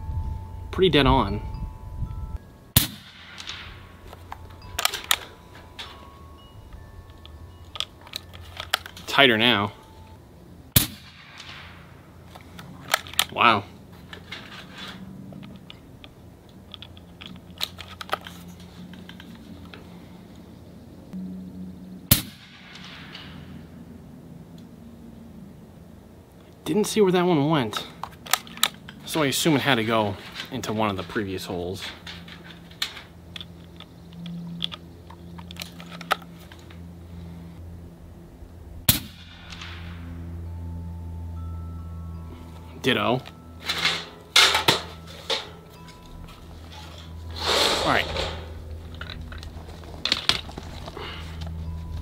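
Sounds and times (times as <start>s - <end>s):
air rifle shot: 10.8s - 11.8s, 22.1s - 23.4s
rifle handling clicks: 15.4s - 19.8s, 27.7s - 29.0s.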